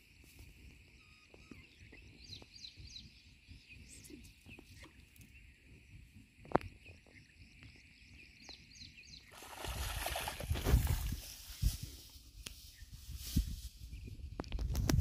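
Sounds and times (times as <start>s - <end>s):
small birds chirping: 0.6s - 10.4s
rustling noise: 10.5s - 15.0s.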